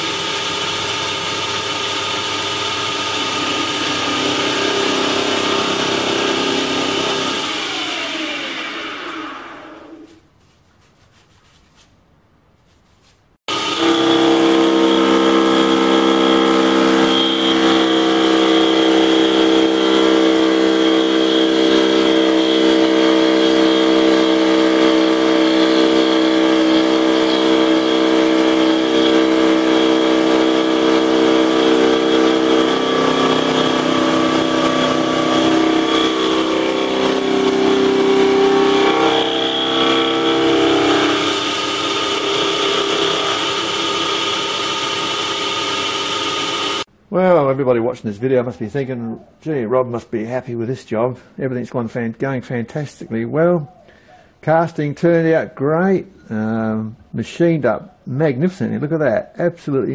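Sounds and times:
lathe machining whine: 0:00.0 - 0:10.1, 0:13.5 - 0:46.9.

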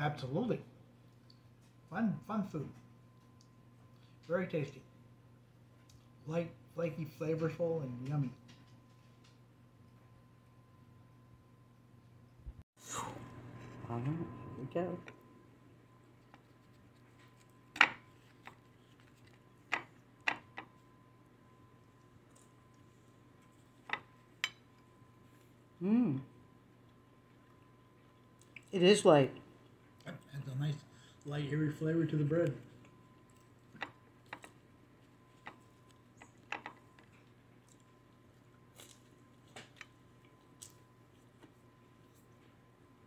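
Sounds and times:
faint electrical hum: 0:00.0 - 0:43.0.

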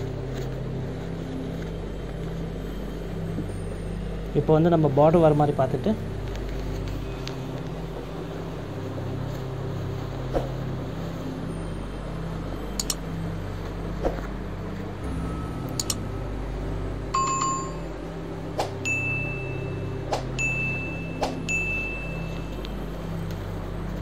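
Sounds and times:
steady low hum: 0:00.0 - 0:24.0
sharp mouse clicks: 0:12.8 - 0:13.0.

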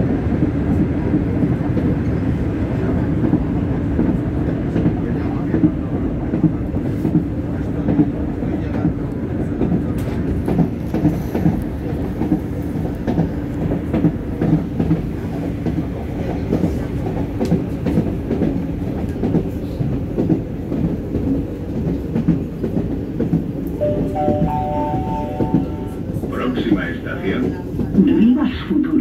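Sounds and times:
train running gear rumble: 0:00.0 - 0:29.0
rising three-note chime: 0:23.8 - 0:26.0.

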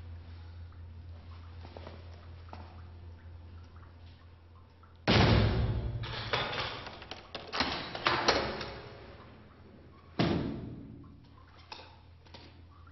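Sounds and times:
heavy door slamming: 0:05.1 - 0:06.4.

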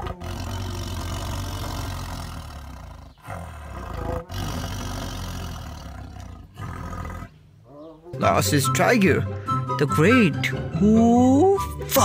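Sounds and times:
tiger growling: 0:00.0 - 0:08.1.

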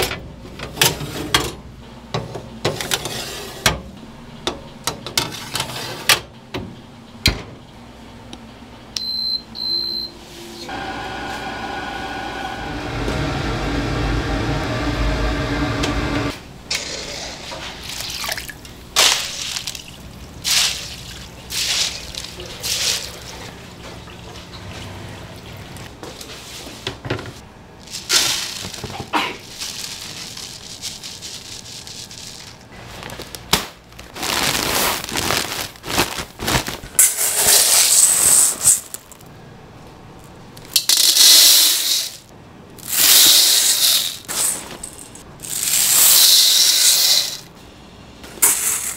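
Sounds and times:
water sloshing and pouring: 0:17.8 - 0:26.0.

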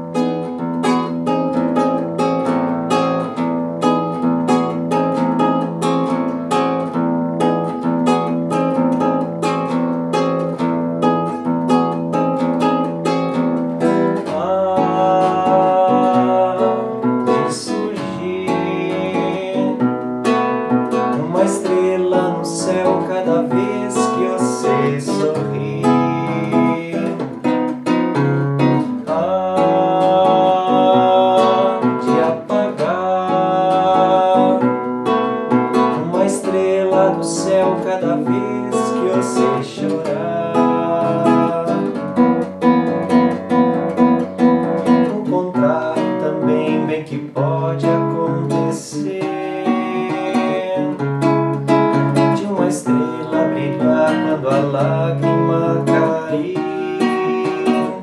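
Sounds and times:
fingerpicked classical guitar: 0:00.0 - 0:58.0
man singing: 0:12.0 - 0:58.0.

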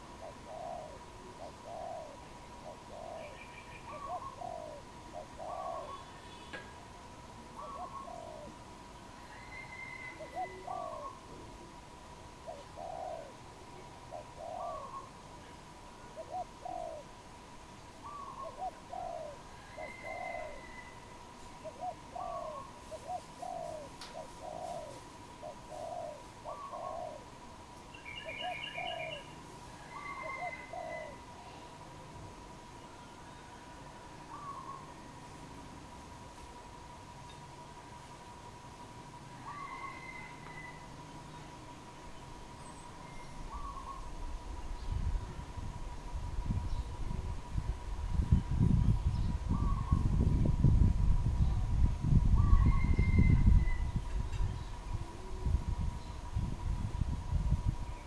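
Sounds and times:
dove cooing: 0:00.0 - 0:06.4, 0:07.5 - 0:08.6, 0:09.2 - 0:15.2, 0:16.0 - 0:17.2, 0:18.0 - 0:27.4, 0:28.0 - 0:31.8, 0:33.3 - 0:35.2, 0:39.3 - 0:41.0, 0:43.4 - 0:44.3, 0:49.5 - 0:50.2, 0:54.8 - 0:55.9
faint bird chirps: 0:00.2 - 0:06.8, 0:17.8 - 0:27.3, 0:32.7 - 0:35.3, 0:39.3 - 0:45.4.

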